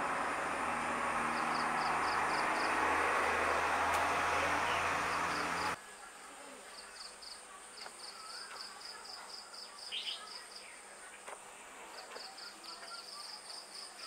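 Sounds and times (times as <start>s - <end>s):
insect chirping: 0.0s - 5.8s.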